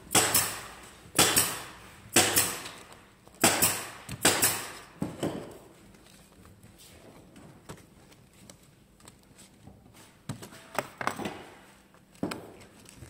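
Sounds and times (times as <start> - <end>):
sharp knocks on wooden frames: 0.1 - 2.6, 3.4 - 5.5.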